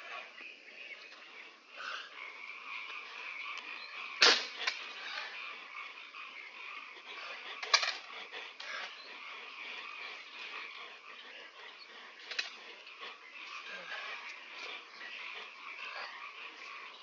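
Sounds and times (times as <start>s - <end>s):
small animals calling: 0.0s - 17.0s
sharp crack: 4.2s - 4.8s.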